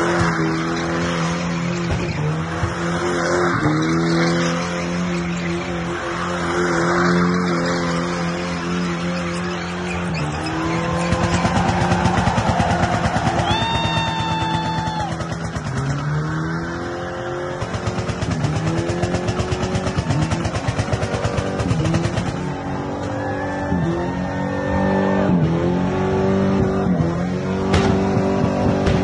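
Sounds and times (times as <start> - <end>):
car engine revving: 0.0 - 29.0
tyre squeal: 3.4 - 6.5, 8.2 - 11.9.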